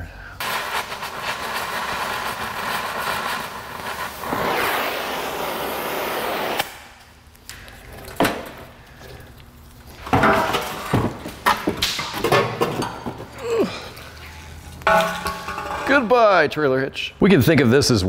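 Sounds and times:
cutting torch hissing: 0.4s - 6.8s
metal clanks: 14.8s - 16.4s.

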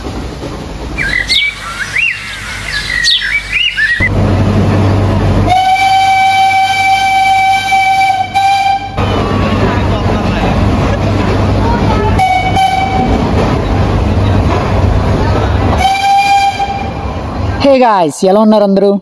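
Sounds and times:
train rumbling: 0.0s - 18.8s
birds chirping: 1.0s - 4.1s
train horn: 5.4s - 9.7s, 12.0s - 13.2s, 15.8s - 17.0s.

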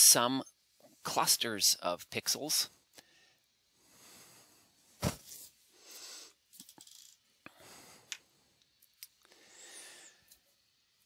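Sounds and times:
soft breaths: 2.9s - 6.5s, 7.4s - 8.6s, 9.2s - 10.7s.

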